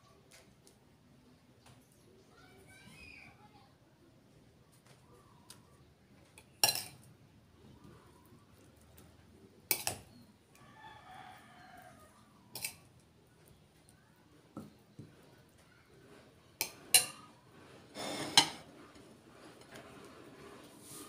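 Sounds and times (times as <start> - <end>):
metal spoon clinking on dishes: 6.4 - 7.1, 9.7 - 10.1, 12.5 - 12.9, 16.6 - 17.3
rooster crowing: 10.6 - 12.3.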